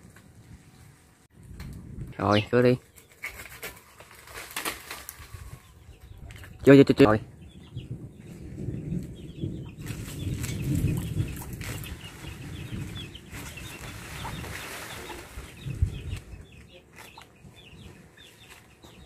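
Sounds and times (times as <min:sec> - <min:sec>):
chickens clucking: 0:09.5 - 0:19.0.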